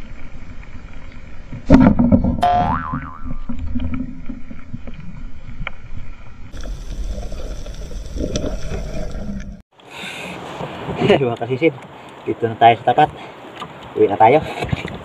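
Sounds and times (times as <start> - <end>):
muffled underwater rush: 0.0 - 9.6.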